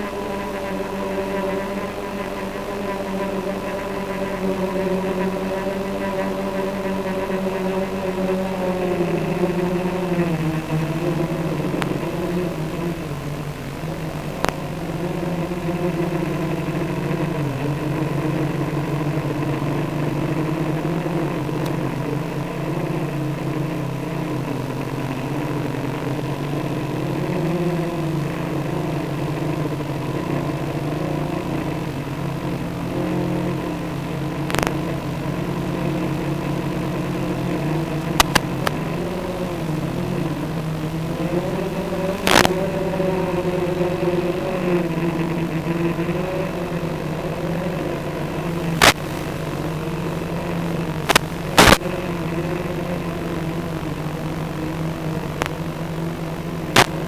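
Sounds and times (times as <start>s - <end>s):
drone propellers humming: 0.0s - 57.0s
sharp clicks: 14.2s - 14.7s, 34.4s - 34.8s, 38.0s - 38.8s, 42.2s - 42.6s, 48.8s - 49.1s, 51.0s - 51.9s.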